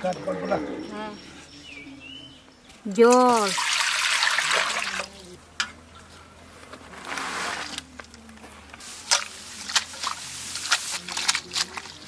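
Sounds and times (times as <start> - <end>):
leaves rustling in a bowl: 8.8 - 12.0.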